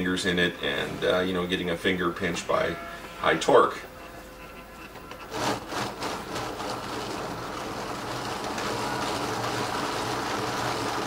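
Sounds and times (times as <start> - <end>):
motor driving plastic gears: 4.5 - 11.0.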